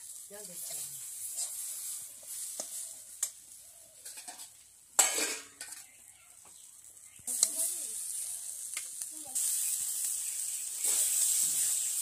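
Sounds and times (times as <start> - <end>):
frying sizzle: 0.0 - 12.0
spatula scraping metal wok: 0.1 - 3.4, 4.0 - 5.9, 9.4 - 12.0.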